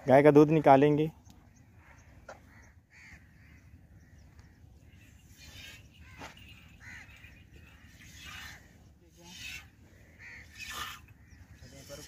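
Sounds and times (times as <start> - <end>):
crow cawing: 2.3 - 8.7, 9.5 - 11.6.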